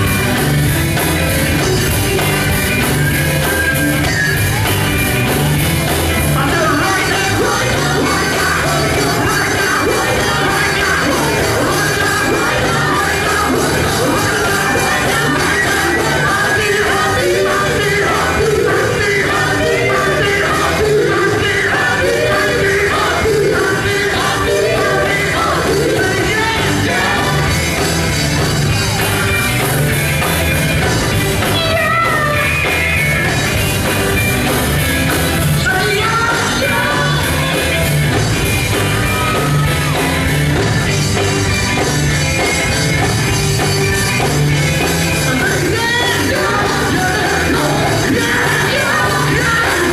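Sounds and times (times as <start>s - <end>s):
band with drums: 0.0s - 49.9s
male gospel group singing: 6.4s - 28.1s, 35.6s - 38.0s, 45.2s - 49.9s.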